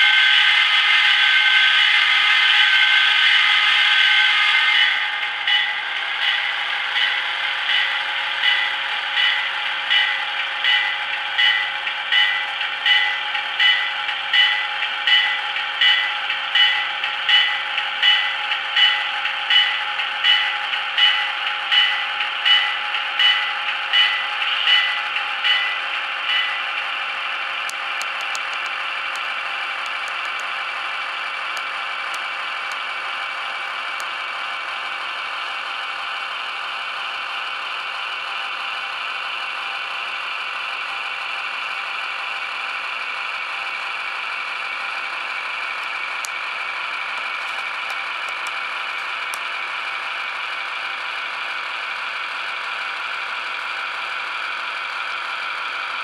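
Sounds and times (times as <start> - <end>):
model locomotive whirring and rattling: 0.0 - 56.0
ringing strikes: 4.7 - 26.7.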